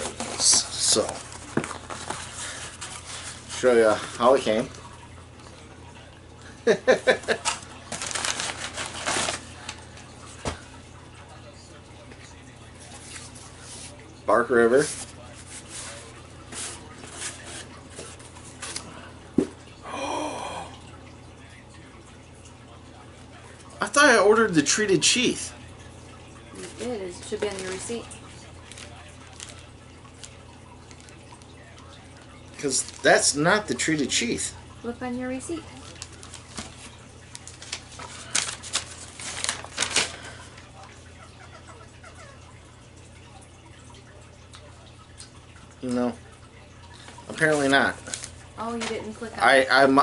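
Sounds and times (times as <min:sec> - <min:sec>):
paper receipt crackling: 0:00.1 - 0:03.7, 0:07.3 - 0:10.2, 0:26.6 - 0:33.4, 0:35.7 - 0:40.7, 0:47.0 - 0:49.2
cardboard scraping rustle: 0:07.9 - 0:09.6.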